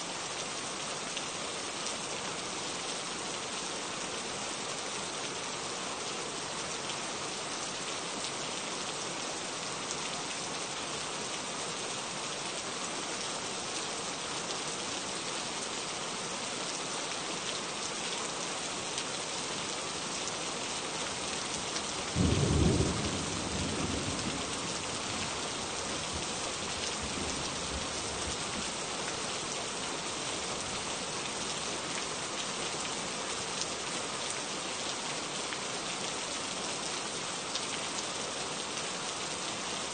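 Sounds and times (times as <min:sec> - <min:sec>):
steady rain falling: 0:00.0 - 0:39.9
thunder clap rumbling: 0:22.2 - 0:24.8.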